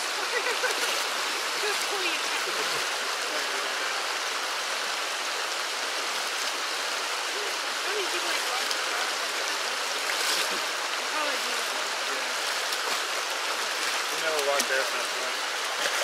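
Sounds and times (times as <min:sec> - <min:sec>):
creek water flowing: 0:00.0 - 0:16.0.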